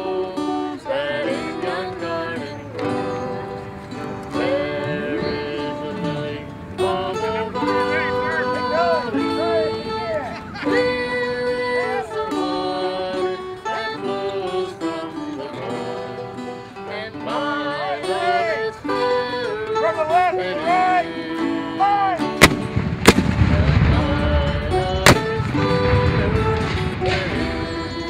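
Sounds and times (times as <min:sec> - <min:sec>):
man singing: 0:00.0 - 0:03.6, 0:04.3 - 0:28.0
acoustic guitar: 0:00.0 - 0:28.0
mandolin: 0:00.0 - 0:28.0
cannon firing: 0:22.4 - 0:27.6.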